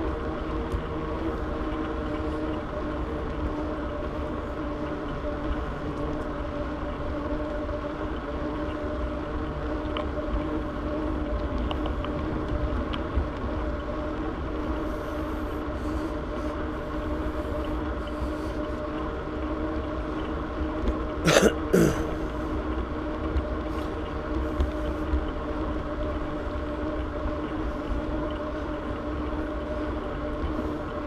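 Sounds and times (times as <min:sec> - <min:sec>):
wind rumble on microphone: 0:00.0 - 0:21.2
bicycle rolling hum: 0:00.0 - 0:31.0.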